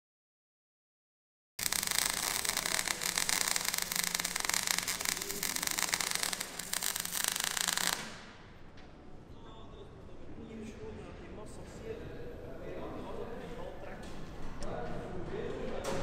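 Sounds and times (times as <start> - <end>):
arc welding crackle: 1.6 - 8.4.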